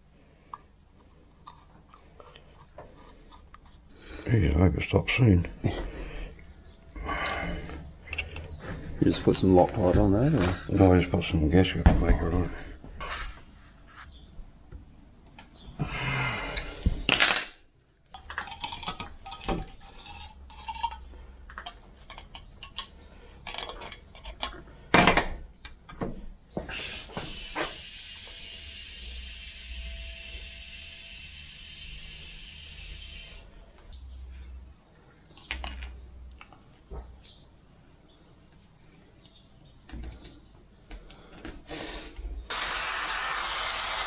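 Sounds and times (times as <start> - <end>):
steady hiss: 26.7 - 33.9, 42.5 - 44.0.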